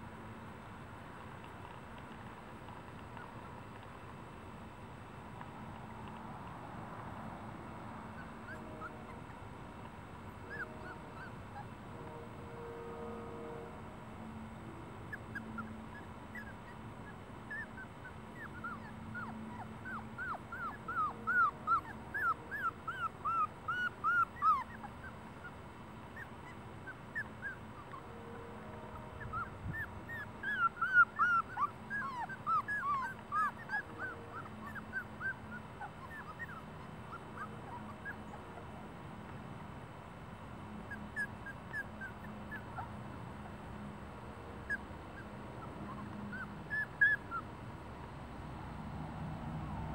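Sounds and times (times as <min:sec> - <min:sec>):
puppies whimpering and crying: 0:08.1 - 0:09.5, 0:10.3 - 0:11.8, 0:15.1 - 0:38.8, 0:40.9 - 0:43.6, 0:44.6 - 0:47.5.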